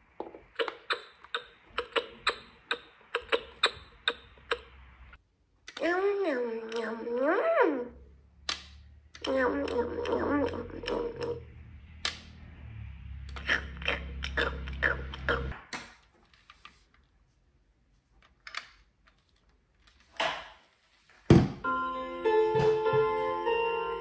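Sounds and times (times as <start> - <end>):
electronic toy feeding noises: 9.2 - 11.5.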